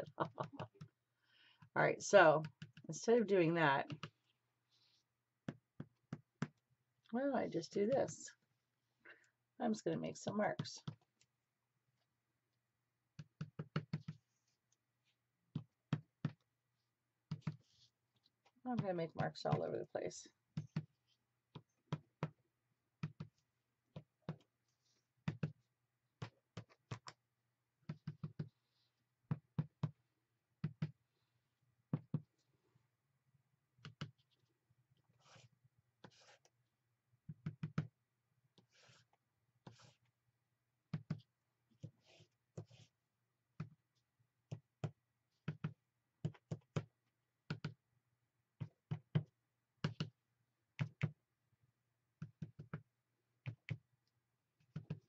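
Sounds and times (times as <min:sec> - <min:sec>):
tool scraping on paper: 0:35.1 - 0:36.5, 0:38.6 - 0:40.1, 0:41.8 - 0:43.0.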